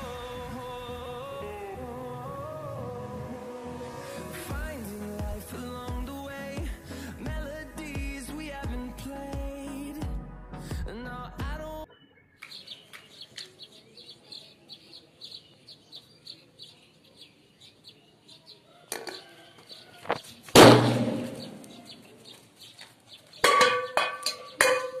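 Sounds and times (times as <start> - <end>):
small birds chirping: 11.8 - 20.6, 21.2 - 25.0
firecracker bang: 20.5 - 21.7.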